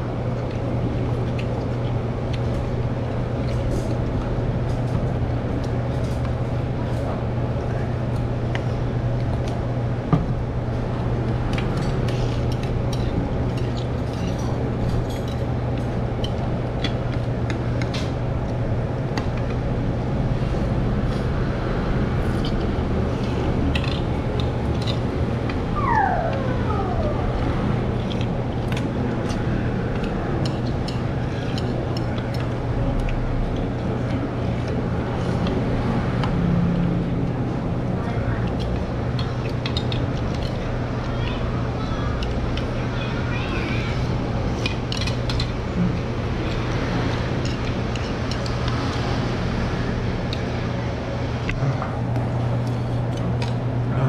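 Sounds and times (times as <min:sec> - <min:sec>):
low background hum: 0:00.0 - 0:54.0
brief falling whine: 0:25.7 - 0:27.3.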